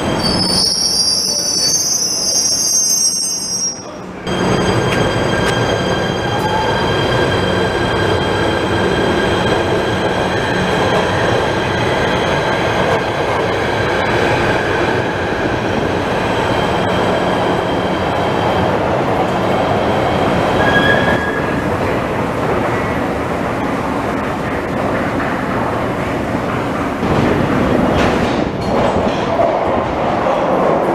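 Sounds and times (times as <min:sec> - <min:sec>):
train wheel squeal: 0:00.0 - 0:08.2, 0:20.5 - 0:21.6.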